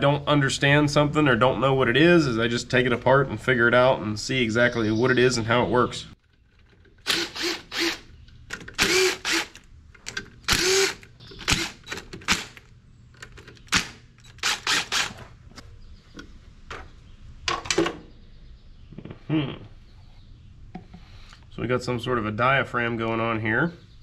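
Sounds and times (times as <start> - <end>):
cordless driver spinning: 6.7 - 12.7, 13.6 - 15.2.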